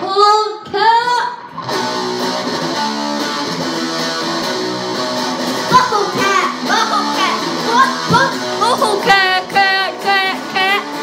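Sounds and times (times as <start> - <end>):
electric guitar strumming chords: 1.4 - 11.0.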